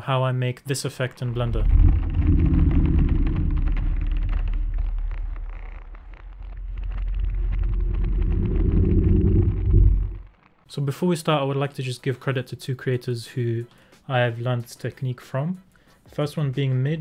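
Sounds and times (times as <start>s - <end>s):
deep loud rumble: 1.3s - 10.3s.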